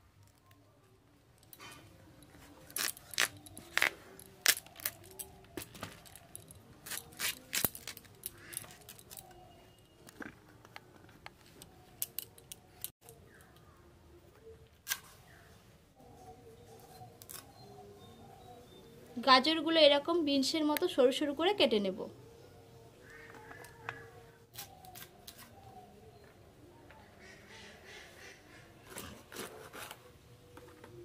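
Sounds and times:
vegetables snapped and cut: 6.9 - 8.1.

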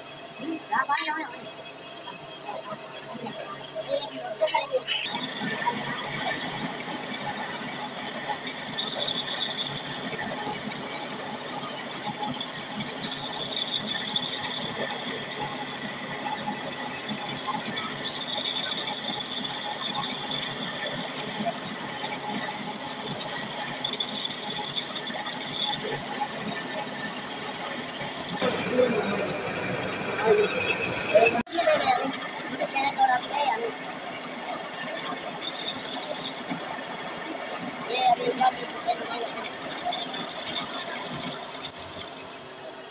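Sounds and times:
drill press grinding: 22.9 - 31.5.

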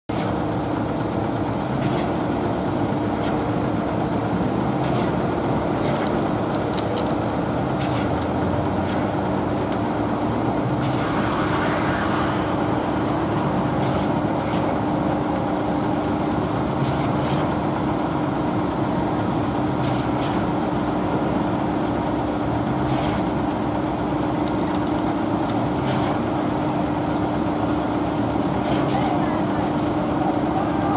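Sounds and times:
diesel trucks idling: 0.1 - 30.9
air hissing: 10.8 - 14.2.

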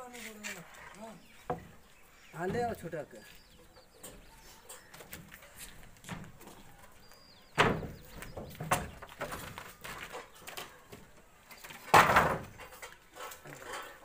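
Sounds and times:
wooden planks knocking: 2.4 - 2.9, 7.5 - 13.0.

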